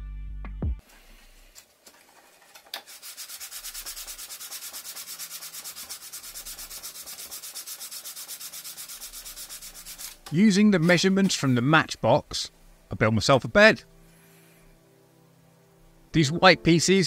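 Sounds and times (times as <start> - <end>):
hand sanding strokes: 2.1 - 11.7.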